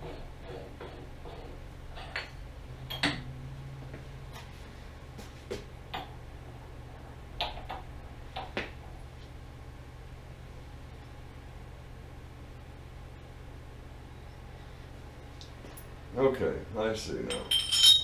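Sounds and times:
low hum: 0.0s - 16.8s
metal tools clicking and clinking: 17.3s - 18.0s.

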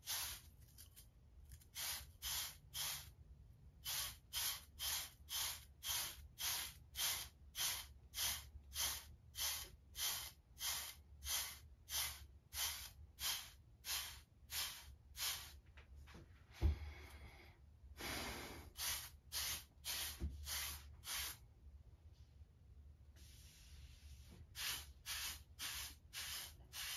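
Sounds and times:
brush swishing over hair: 18.7s - 21.4s, 23.2s - 26.9s.

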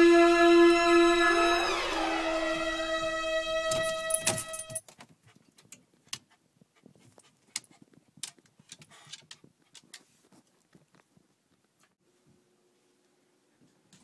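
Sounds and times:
background music: 0.0s - 4.8s
soft rustle: 9.4s - 13.9s.

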